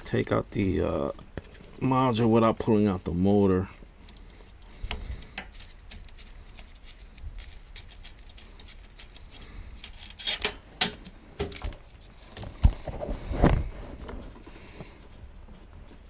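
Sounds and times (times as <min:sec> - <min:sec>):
clicks scrapes and rustles of hands: 0:04.0 - 0:11.2.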